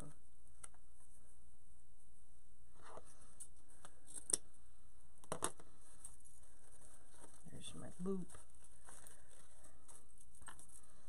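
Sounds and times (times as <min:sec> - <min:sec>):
ribbon rustling: 0:05.3 - 0:11.0.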